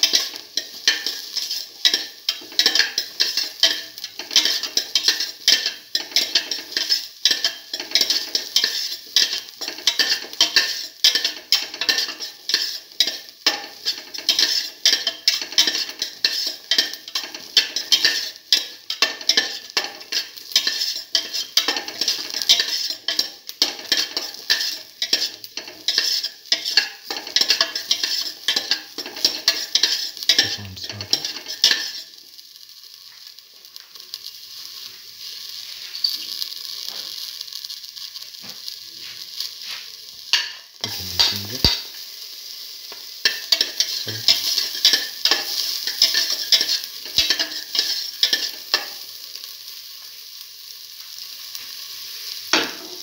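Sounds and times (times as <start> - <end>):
onions sizzling in hot oil: 0.0 - 53.0
utensil scraping a metal pot: 0.1 - 18.3, 18.9 - 32.0.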